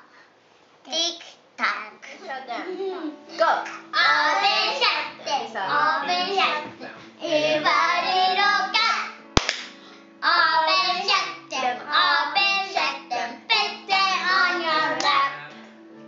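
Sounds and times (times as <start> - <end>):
children singing: 3.8 - 9.2, 10.2 - 15.5
hand clap: 9.4 - 9.8.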